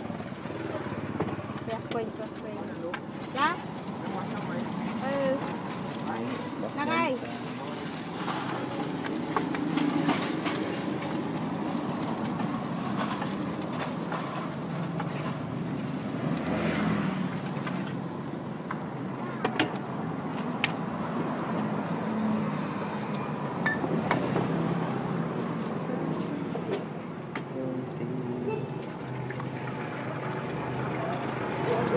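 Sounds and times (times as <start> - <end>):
road traffic: 0.0 - 31.9.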